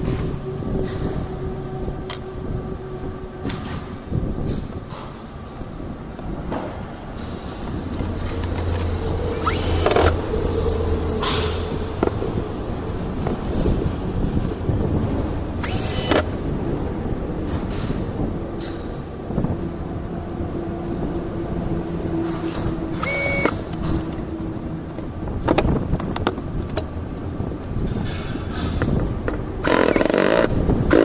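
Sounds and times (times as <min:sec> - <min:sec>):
cordless drill whirring: 0:09.3 - 0:10.2, 0:15.6 - 0:16.3, 0:22.9 - 0:23.6, 0:29.6 - 0:31.0.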